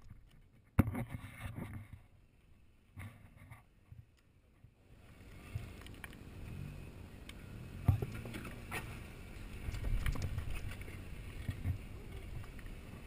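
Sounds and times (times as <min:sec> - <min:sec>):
rocks knocking under tyres: 0:09.6 - 0:10.9.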